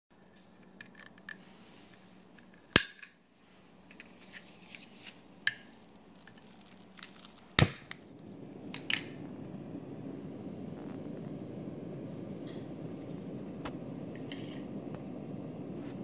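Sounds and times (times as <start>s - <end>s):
burner flame rushing: 4.5s - 16.0s
lighter clicking: 5.1s - 15.8s.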